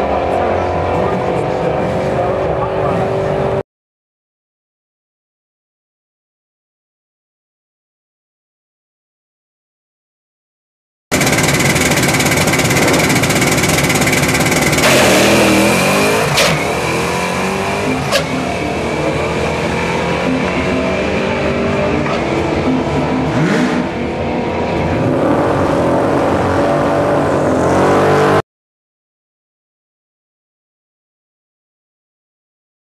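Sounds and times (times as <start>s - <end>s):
car engine revving on drag run: 0.0s - 3.6s, 11.1s - 28.4s.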